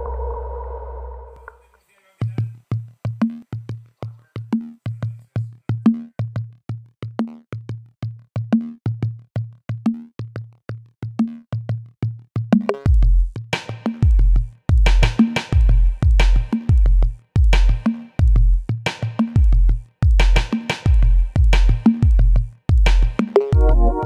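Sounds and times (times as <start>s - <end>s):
electronic music with drum machine: 19.2s - 24.0s.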